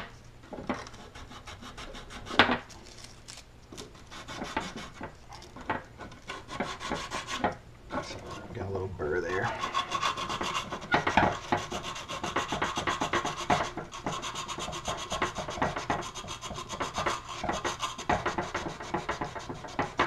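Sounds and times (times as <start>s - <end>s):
sandpaper rubbing back and forth: 0.9s - 2.5s, 4.0s - 5.0s, 6.3s - 8.5s, 9.4s - 20.0s.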